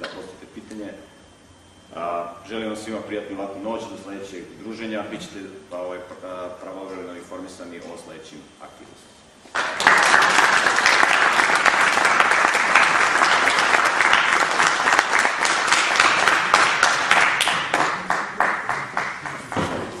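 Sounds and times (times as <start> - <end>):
audience applauding: 9.5 - 20.0.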